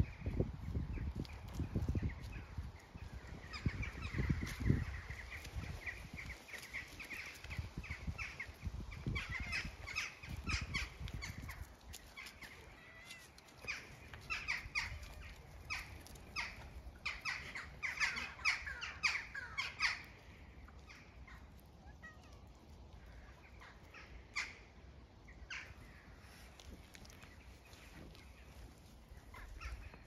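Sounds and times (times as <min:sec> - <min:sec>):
crows cawing: 0:14.4 - 0:20.2.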